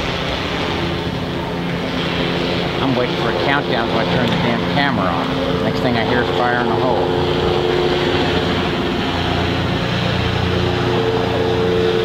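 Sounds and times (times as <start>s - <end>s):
steady engine drone: 0.0s - 12.0s.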